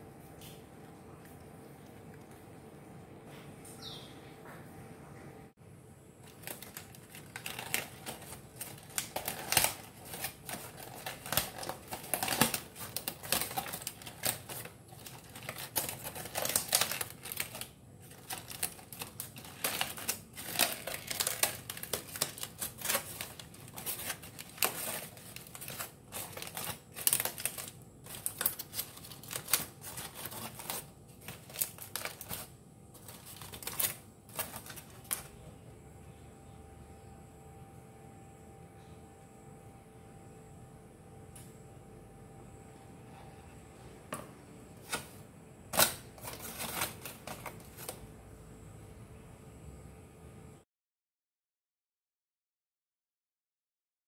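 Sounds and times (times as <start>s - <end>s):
foil crinkling: 6.2s - 35.4s, 44.8s - 48.0s.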